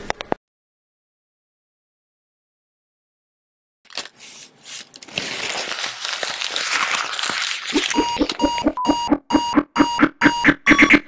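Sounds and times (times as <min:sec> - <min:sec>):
paper crinkling: 0:03.9 - 0:08.4
rapid electronic beeping: 0:07.7 - 0:11.0.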